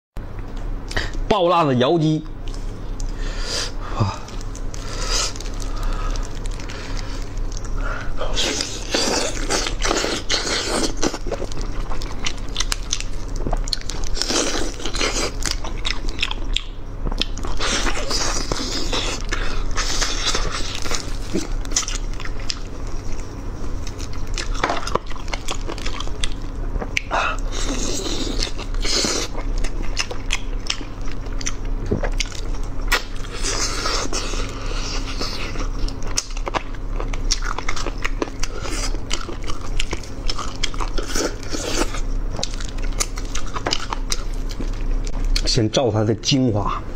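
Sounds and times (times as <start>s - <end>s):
crackling mouth sounds: 2.4s - 45.5s
biting and chewing: 4.0s - 45.5s.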